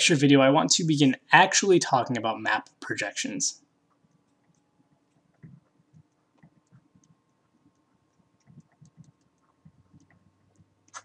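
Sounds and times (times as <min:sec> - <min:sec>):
stylus tapping on tablet: 0:08.4 - 0:11.0.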